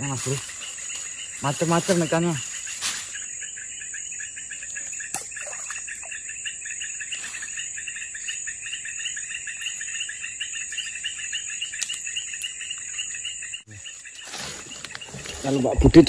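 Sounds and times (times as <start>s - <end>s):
insects buzzing high-pitched: 0.0s - 15.8s
rapid pulsing insect trill: 0.0s - 16.0s.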